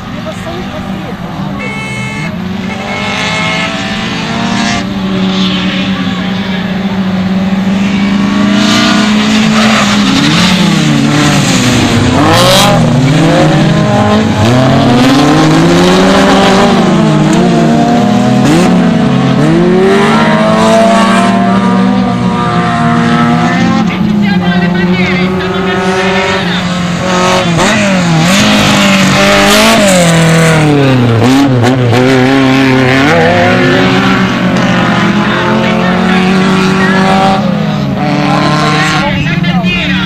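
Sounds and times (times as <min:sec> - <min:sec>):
race car engines revving: 0:00.0 - 0:40.0.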